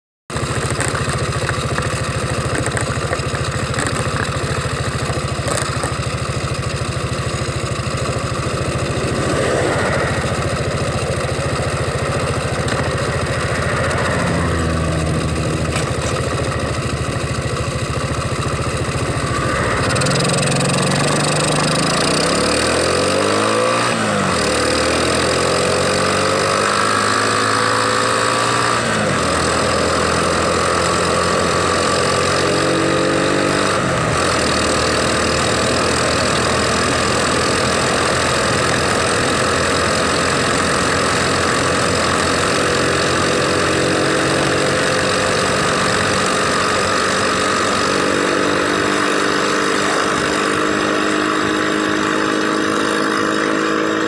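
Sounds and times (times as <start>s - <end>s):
car engine idling and revving: 0.3s - 54.0s.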